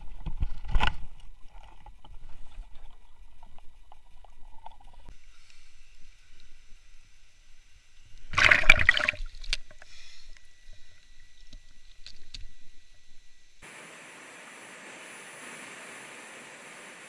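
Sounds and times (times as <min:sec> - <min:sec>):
loud water splash: 0:08.3 - 0:09.2.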